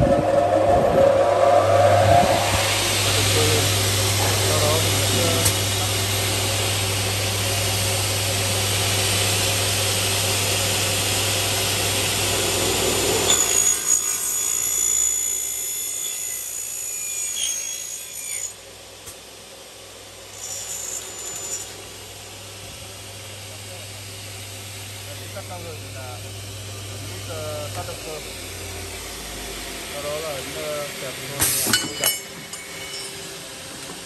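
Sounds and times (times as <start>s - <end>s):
cutting saw running: 0.0s - 18.6s, 20.3s - 31.4s
saw blade cutting aluminium: 12.4s - 18.6s, 20.3s - 21.8s.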